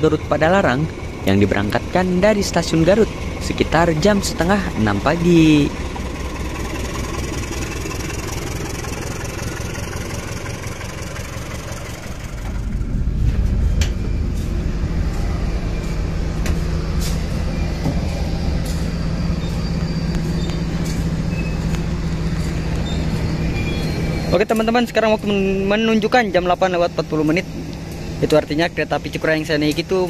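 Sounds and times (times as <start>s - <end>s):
locomotive passing slowly: 0.0s - 30.0s
low train engine hum: 0.0s - 30.0s.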